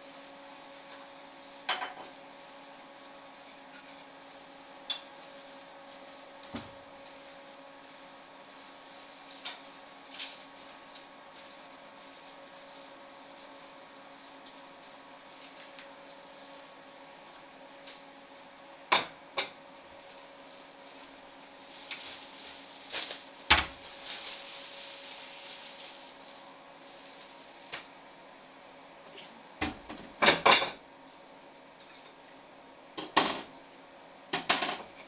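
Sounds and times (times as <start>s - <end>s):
plastic bag rustling: 0.1s - 4.5s, 5.1s - 18.6s, 19.7s - 28.8s, 31.0s - 31.6s.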